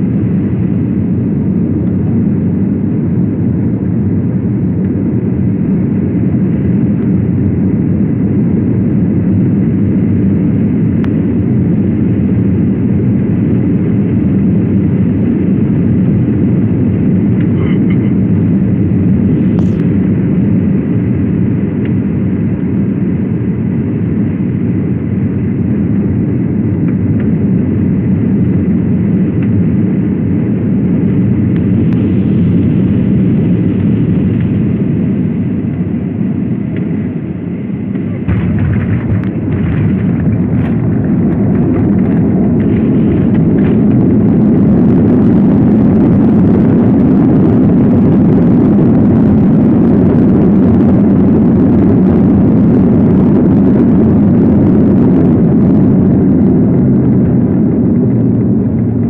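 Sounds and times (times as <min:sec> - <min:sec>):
airliner cabin engine and airflow rush: 0:00.0 - 0:59.0.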